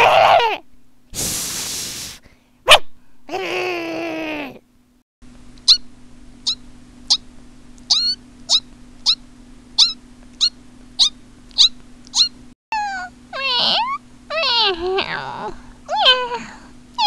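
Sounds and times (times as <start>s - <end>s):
person imitating cat meow: 0.0s - 0.6s, 3.3s - 4.6s, 12.7s - 16.5s
steady low hum: 4.6s - 17.0s
person imitating mouse squeaks: 5.6s - 7.2s, 7.8s - 9.2s, 9.8s - 16.3s.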